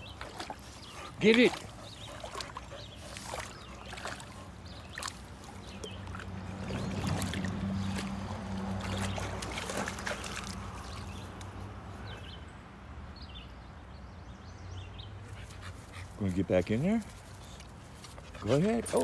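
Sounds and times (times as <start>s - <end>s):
dog splashing in water: 0.0s - 11.4s.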